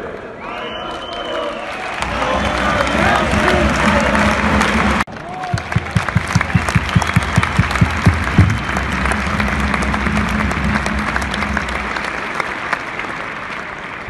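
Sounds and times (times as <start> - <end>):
crowd applauding: 0.0 - 14.0
fast low beats: 2.0 - 12.8
steady low tone: 2.0 - 13.0.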